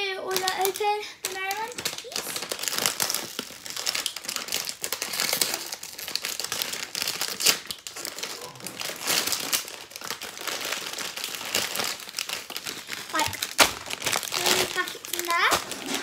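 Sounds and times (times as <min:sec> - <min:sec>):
plastic snack bag crinkling: 0:00.0 - 0:16.0.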